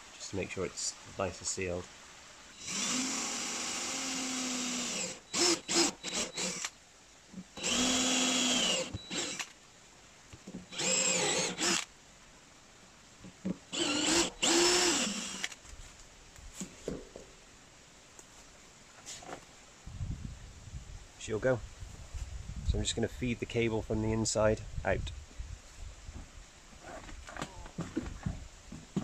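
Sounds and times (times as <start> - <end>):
cordless drill boring through plastic: 2.6 - 6.7, 7.6 - 9.5, 10.7 - 11.9, 13.7 - 15.6.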